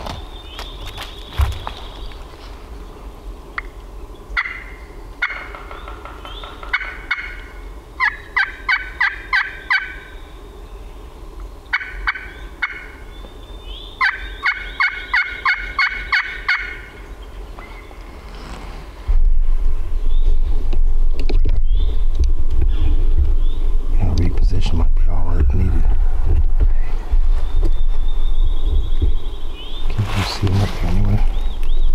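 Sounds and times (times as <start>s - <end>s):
turkey call yelps: 4.4s - 10.2s, 11.7s - 13.0s, 14.0s - 16.9s.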